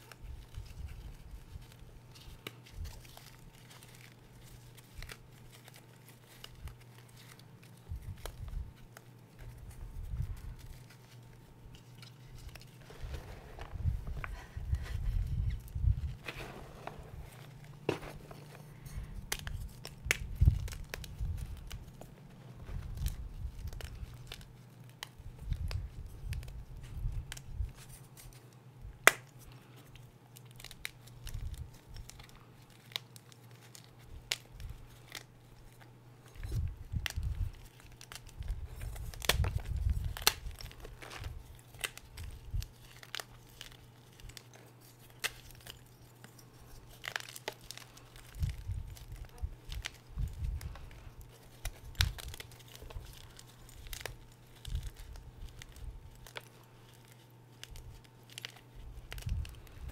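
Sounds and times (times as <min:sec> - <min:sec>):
chalk crunching and crumbling: 0:00.0 - 0:28.5, 0:29.1 - 0:59.9
steady low hum: 0:00.0 - 0:59.9
chalk pieces snapping: 0:16.2 - 0:59.8.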